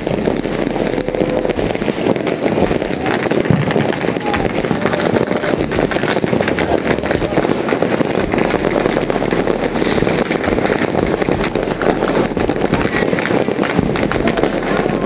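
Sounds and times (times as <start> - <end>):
fireworks crackling and banging: 0.0 - 15.0.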